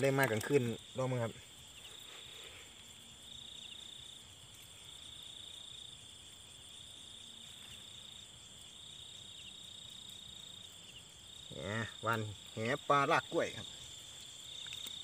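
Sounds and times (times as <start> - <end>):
crickets trilling: 0.0 - 15.0.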